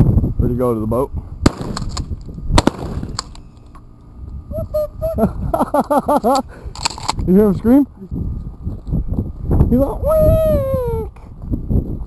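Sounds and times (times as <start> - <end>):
shotgun shots: 1.4 - 3.4.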